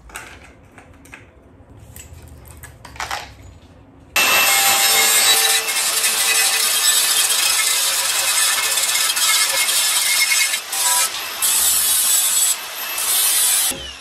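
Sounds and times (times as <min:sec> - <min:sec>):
angle grinder grinding metal: 0:04.2 - 0:14.0.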